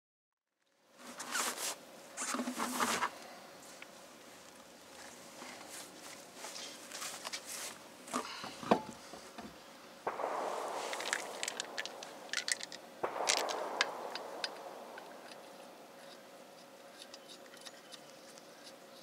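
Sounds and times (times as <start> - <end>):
sudden rushing noise: 10.1 - 16.5.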